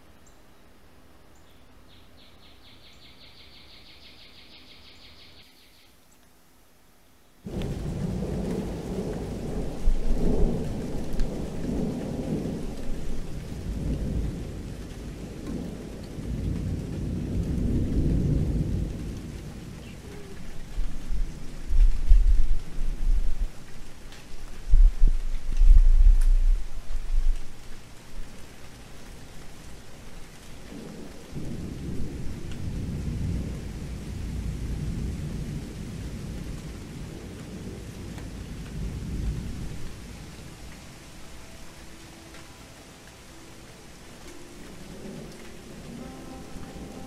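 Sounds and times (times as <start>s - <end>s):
steady rain: 0.0s - 47.0s
thunder rumbling: 7.5s - 27.9s, 30.4s - 42.4s, 44.2s - 47.0s.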